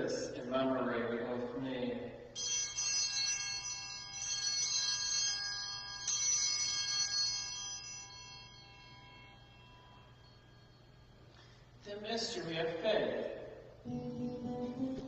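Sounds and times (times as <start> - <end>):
altar bells ringing: 2.2 - 12.8.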